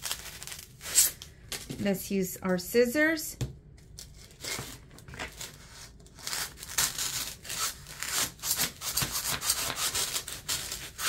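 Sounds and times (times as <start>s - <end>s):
scissor blade scraping styrofoam: 4.2s - 11.0s.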